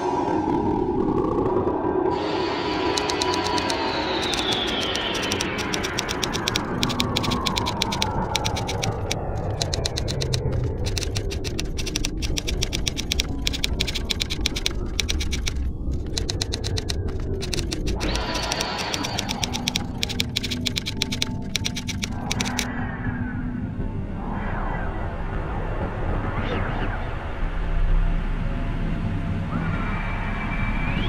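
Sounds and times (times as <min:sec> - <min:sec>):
rapid even clicking: 0:02.9 - 0:22.7.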